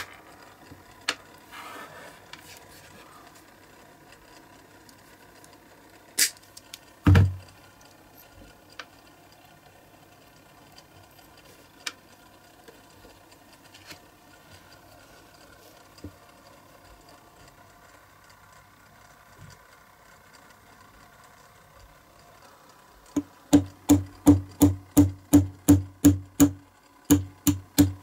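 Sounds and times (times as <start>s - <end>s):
dull knock: 7.1s - 7.4s, 23.6s - 28.0s.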